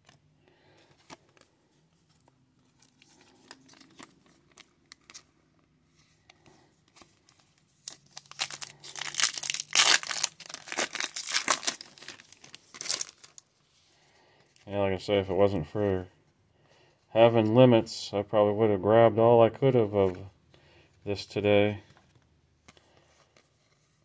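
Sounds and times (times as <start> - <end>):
wrapper tearing and crinkling: 7.8 - 13.4.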